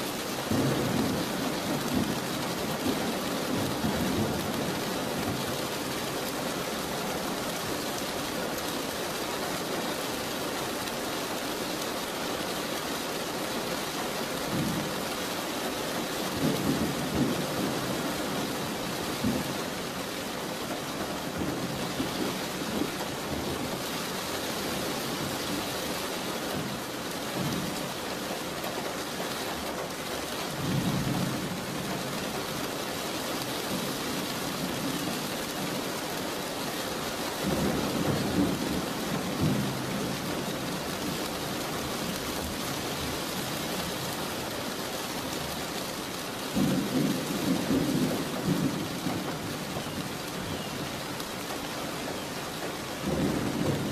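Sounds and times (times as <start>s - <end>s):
steady rain: 0.0s - 53.9s
thunder rumbling: 53.0s - 53.9s.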